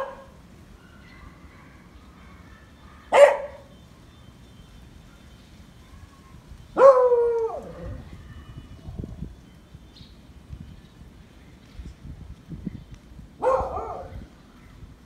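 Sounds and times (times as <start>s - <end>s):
dog barking: 0.0s - 0.4s, 1.0s - 3.7s, 6.8s - 7.7s, 13.4s - 14.2s.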